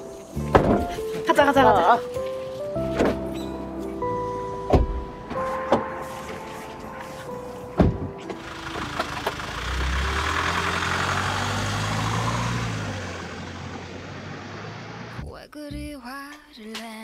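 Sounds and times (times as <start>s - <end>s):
minivan engine pulling away: 6.2s - 15.2s.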